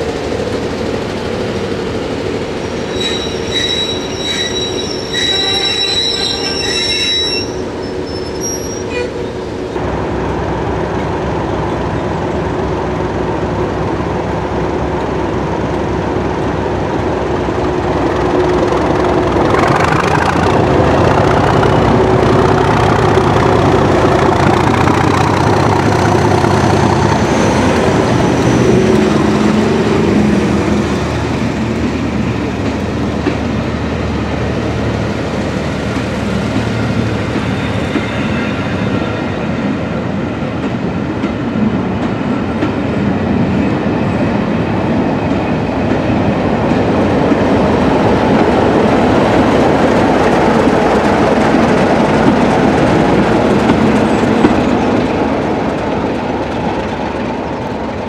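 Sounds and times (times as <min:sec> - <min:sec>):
diesel locomotive passing: 0:00.0 - 0:58.0
high wheel squeal: 0:02.7 - 0:09.4.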